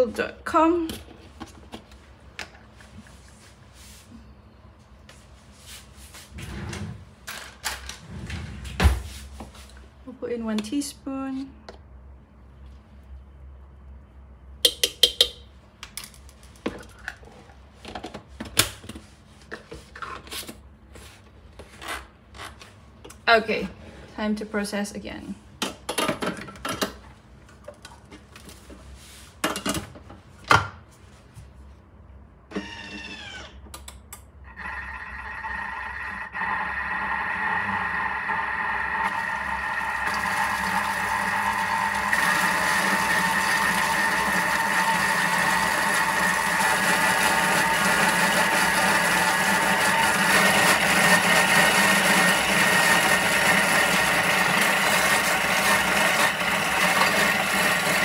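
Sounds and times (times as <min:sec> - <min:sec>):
knocks and clicks of bowl: 0:14.6 - 0:15.4
food processor motor whine: 0:34.5 - 0:58.0.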